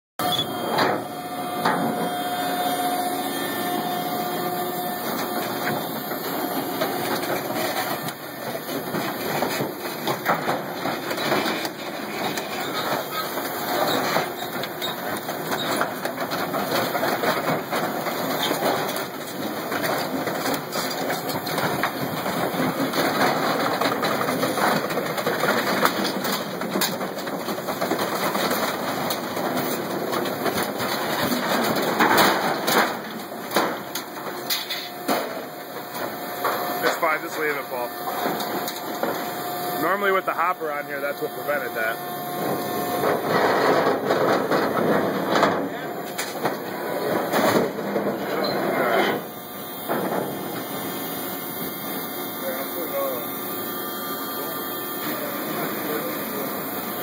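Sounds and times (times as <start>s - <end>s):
steady tone: 0.2s - 8.7s
compactor machine running: 0.2s - 57.0s
metal creaking and crackling: 18.0s - 50.8s.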